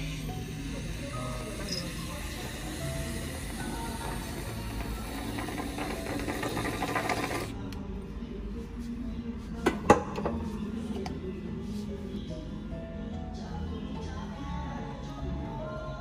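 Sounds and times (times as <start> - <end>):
whipped cream dispenser hissing: 0.0 - 7.5.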